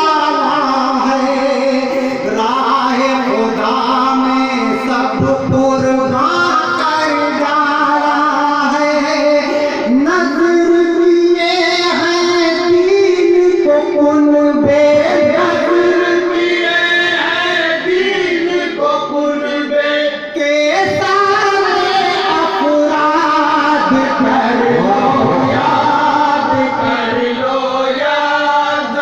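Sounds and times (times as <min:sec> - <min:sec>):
man singing into a microphone: 0:00.0 - 0:29.0.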